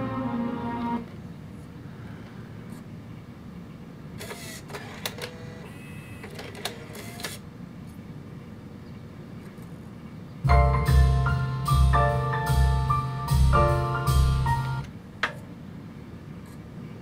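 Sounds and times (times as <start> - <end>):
cd changer whirring and clicking: 4.2 - 7.4.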